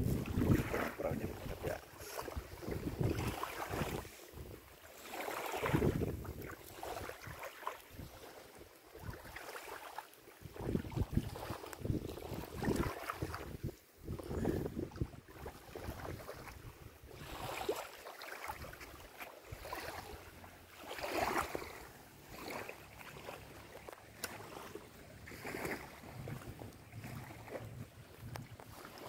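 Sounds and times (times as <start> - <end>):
wind buffeting microphone: 0.0 - 4.7, 5.6 - 7.3, 10.4 - 17.6, 25.2 - 29.0
small waves washing on shore: 0.0 - 29.0.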